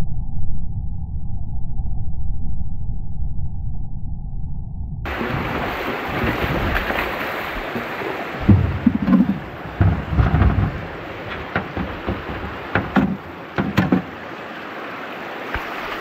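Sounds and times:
wind buffeting microphone: 5.1s - 14.4s
river water rushing over rocks: 5.1s - 16.0s.

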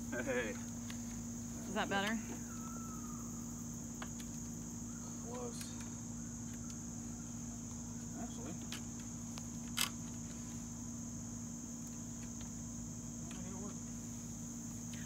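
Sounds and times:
crickets chirping: 0.0s - 15.0s
low steady hum: 0.0s - 15.0s.

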